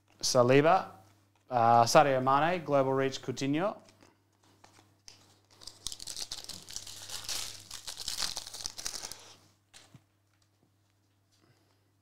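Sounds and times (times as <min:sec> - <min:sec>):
foil wrapper tearing and crinkling: 0:05.5 - 0:09.4.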